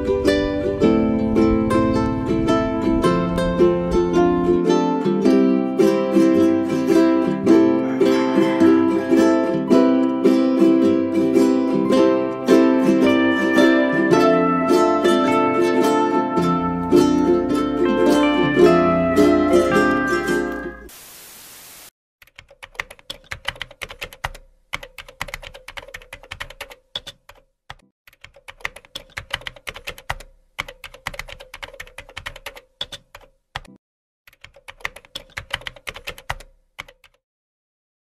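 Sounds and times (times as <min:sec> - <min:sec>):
steady hiss: 0:20.8 - 0:21.9
computer keyboard typing: 0:22.2 - 0:37.2.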